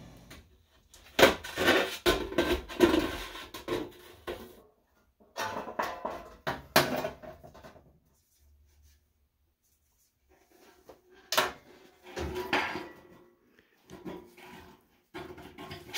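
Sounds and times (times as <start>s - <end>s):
sheet metal clattering and scraping: 5.2s - 7.8s, 10.4s - 15.9s.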